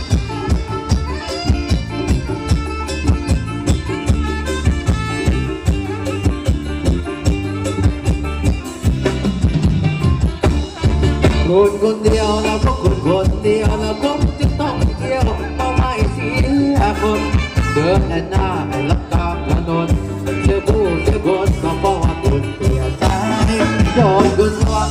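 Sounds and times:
live band dance music: 0:00.0 - 0:24.9
steady drum beat: 0:00.0 - 0:24.9
person singing: 0:11.3 - 0:24.9.

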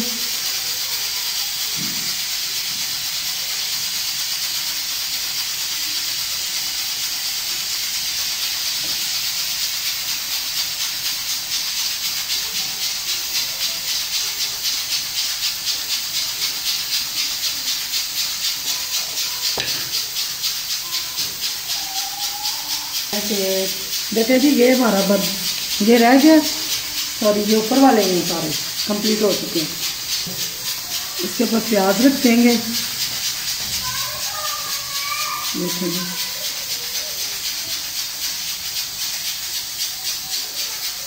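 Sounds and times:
pressure cooker hissing steam: 0:00.0 - 0:41.0.

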